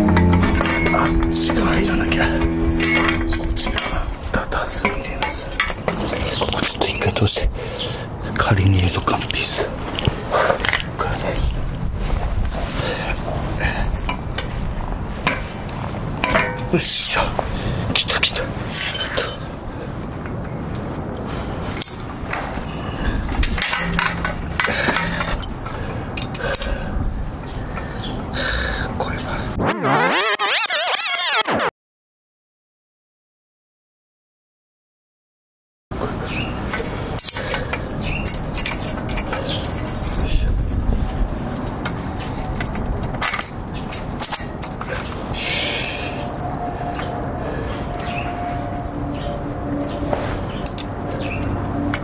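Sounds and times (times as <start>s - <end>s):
metallic clicks and knocks: 23.5s - 25.5s
small metal clinks and rattles: 36.7s - 40.2s.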